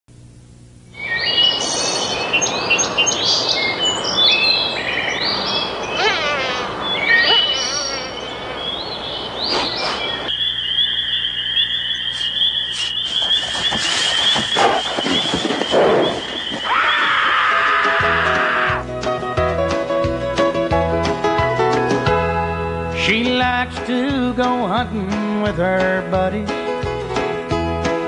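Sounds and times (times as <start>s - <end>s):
animal chirps: 1.0s - 17.9s.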